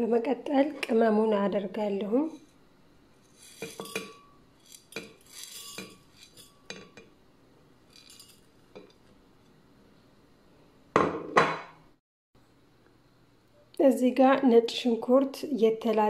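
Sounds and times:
plate clinking on glass jar: 3.5s - 7.1s.

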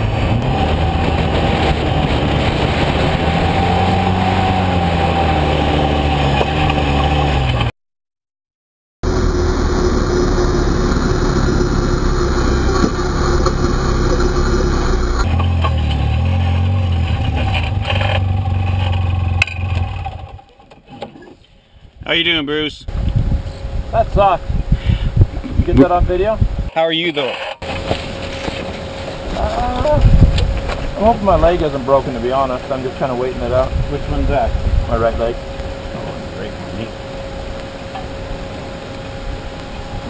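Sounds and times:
atv engine running: 0.0s - 7.7s, 9.0s - 21.0s, 27.6s - 40.0s.

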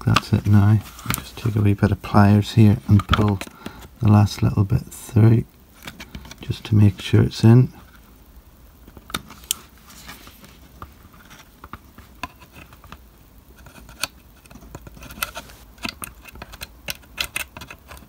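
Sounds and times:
model handling noise: 0.0s - 8.1s, 8.8s - 18.0s.

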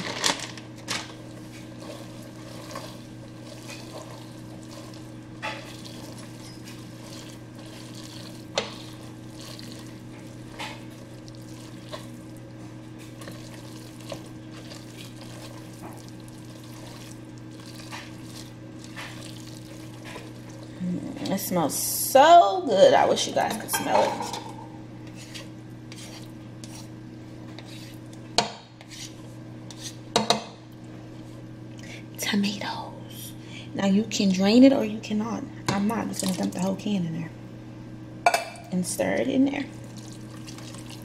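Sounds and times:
spatula stirring spaghetti: 0.8s - 21.5s, 23.4s - 30.1s, 39.7s - 41.0s
spatula scraping and tapping pot: 1.5s - 9.8s, 23.5s - 26.9s, 27.5s - 30.4s.

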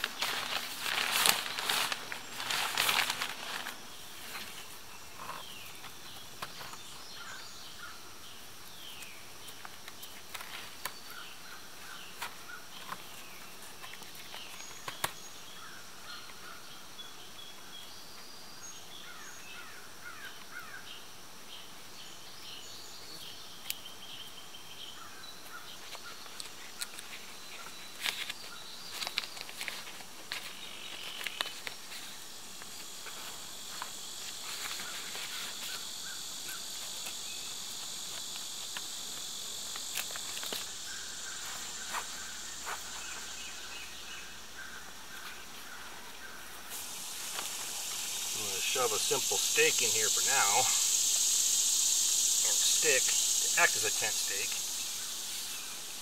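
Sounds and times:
plastic tarp rustling: 0.0s - 4.8s
high insect buzz: 0.0s - 56.0s.

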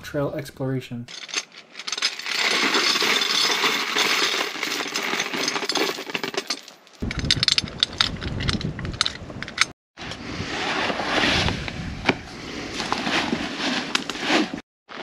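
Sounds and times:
bike lock chain rattling: 1.1s - 9.7s.

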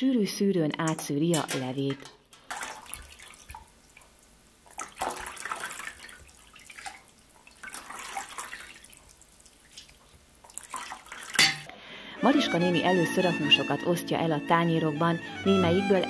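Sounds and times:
broth pouring and splashing: 2.4s - 11.6s.

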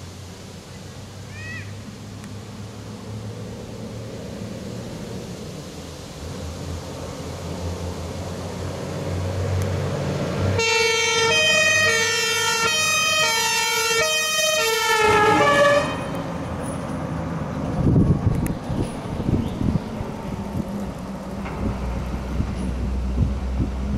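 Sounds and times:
fire truck engine rumbling: 0.0s - 23.9s
two-tone air horn: 10.6s - 16.3s.

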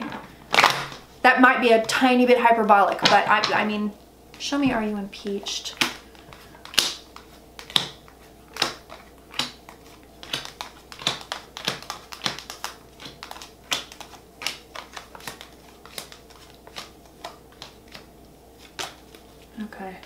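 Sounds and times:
cards shuffled and laid down: 5.8s - 19.4s.

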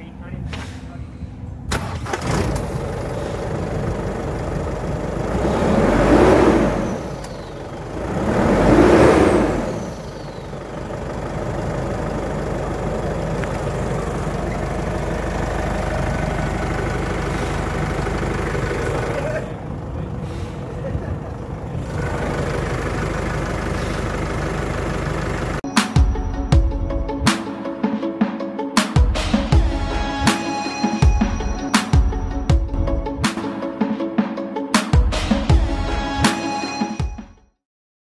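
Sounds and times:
diesel engine starting: 0.4s - 25.6s
engine idling: 1.5s - 25.6s
engine revving: 1.7s - 19.6s, 21.6s - 25.6s.

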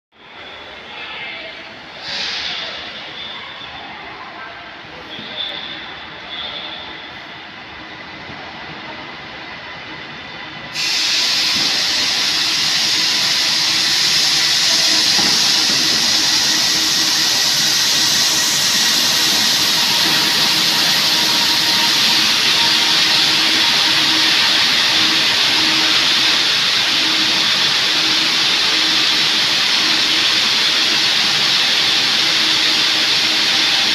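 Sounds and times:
electric train hissing: 1.9s - 3.1s, 10.7s - 33.9s.

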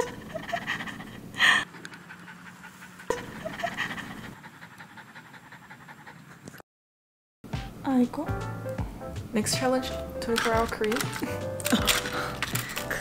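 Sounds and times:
dog panting: 0.4s - 6.6s.

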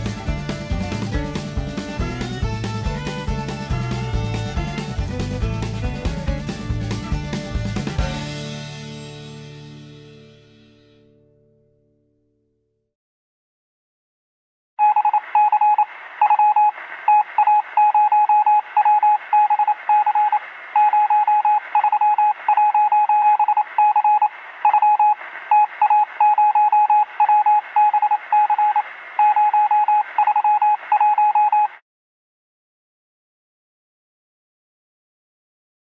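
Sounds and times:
morse code beeps: 14.8s - 31.8s
radio hiss: 15.2s - 17.8s, 18.6s - 20.9s, 23.6s - 26.2s, 28.6s - 29.2s.

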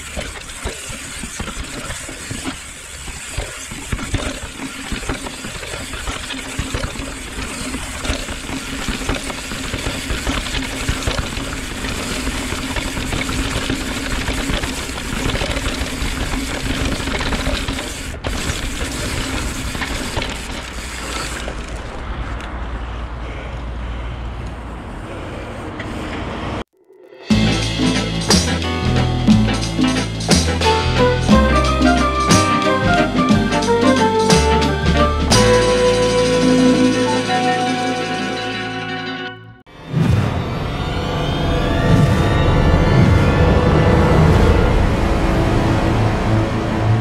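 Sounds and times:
bike chain and frame rattling: 0.0s - 22.5s.

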